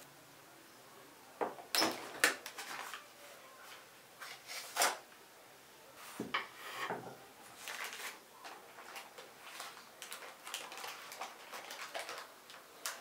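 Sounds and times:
parchment paper rustling: 2.4 - 5.0, 7.5 - 13.0.

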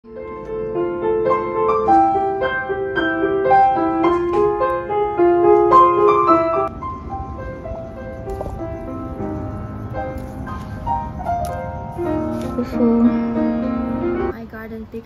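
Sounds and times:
piano music: 0.0 - 14.4.

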